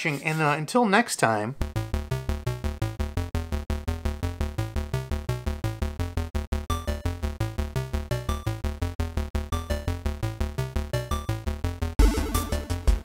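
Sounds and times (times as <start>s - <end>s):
steady bass line: 1.6s - 13.0s
repeating synthesizer notes: 12.0s - 13.0s.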